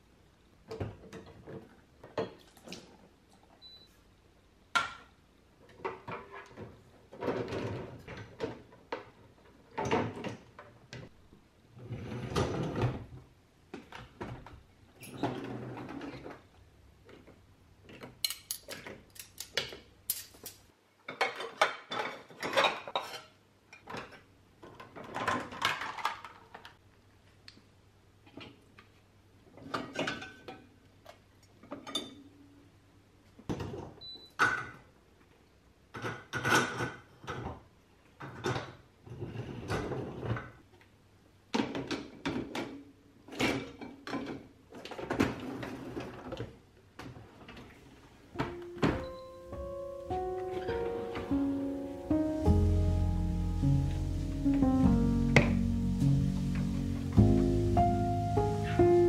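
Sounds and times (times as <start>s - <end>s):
dishes and cutlery clinking: 18.1s - 24.0s.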